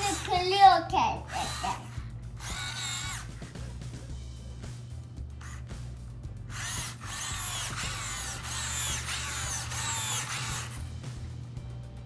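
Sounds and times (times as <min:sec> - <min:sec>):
steady low hum: 0:00.0 - 0:12.0
robot motors whining: 0:01.3 - 0:03.5, 0:06.5 - 0:10.9.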